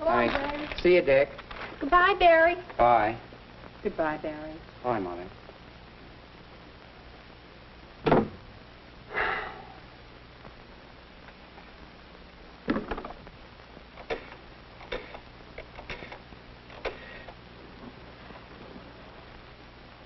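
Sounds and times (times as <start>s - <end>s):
steady low hum: 0.0s - 20.0s
door shutting: 8.0s - 8.4s.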